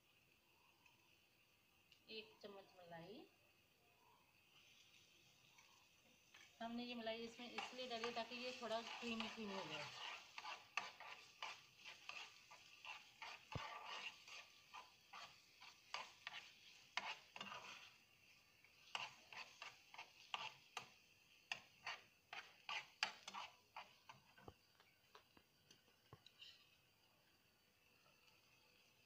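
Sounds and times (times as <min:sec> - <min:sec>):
faint sizzle: 0:00.0 - 0:29.0
spoon scraping a pan: 0:04.6 - 0:06.6, 0:07.2 - 0:25.2, 0:26.2 - 0:26.8
metal spoon stirring sauce: 0:07.2 - 0:24.5.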